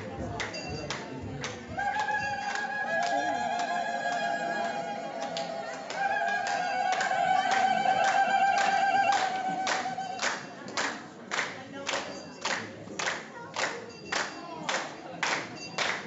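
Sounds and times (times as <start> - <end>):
rhythmic hand clapping: 0.0 - 16.0.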